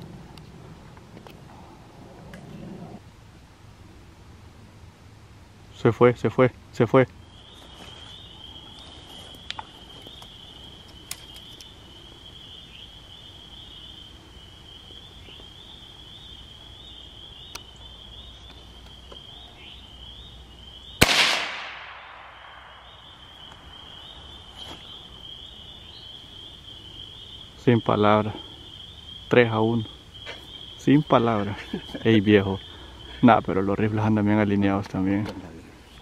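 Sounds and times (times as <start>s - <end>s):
rifle shot with echo: 21.0s - 22.8s.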